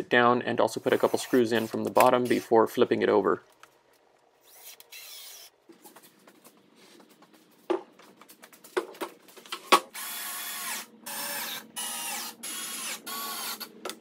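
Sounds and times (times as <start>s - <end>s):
cordless drill whirring: 4.4s - 5.5s, 9.9s - 13.7s.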